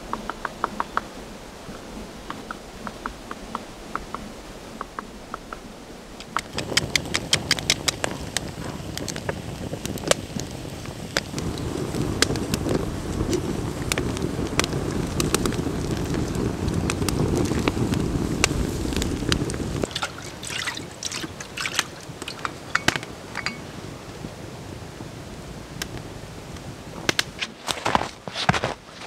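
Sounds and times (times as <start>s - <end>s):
woodpecker tapping on wood: 0.0s - 1.1s, 1.7s - 9.2s
campfire crackling and popping: 1.8s - 29.0s.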